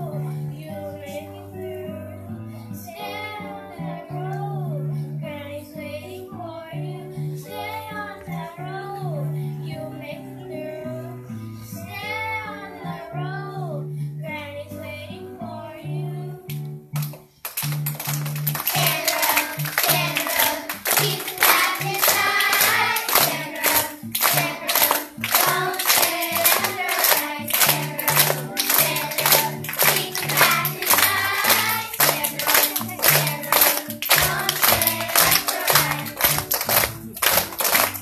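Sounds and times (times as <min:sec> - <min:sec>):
hands clapping in time: 0:16.5 - 0:38.0.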